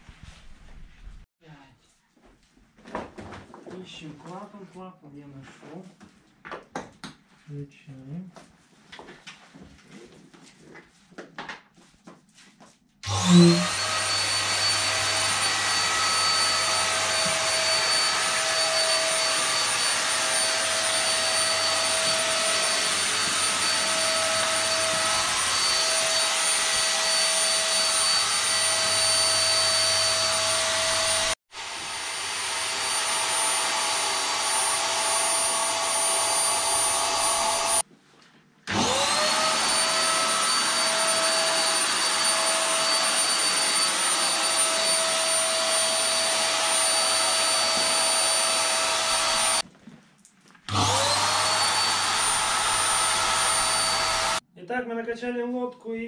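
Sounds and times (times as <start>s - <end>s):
electric air pump whining: 13.0s - 37.9s, 38.7s - 49.6s, 50.7s - 54.4s.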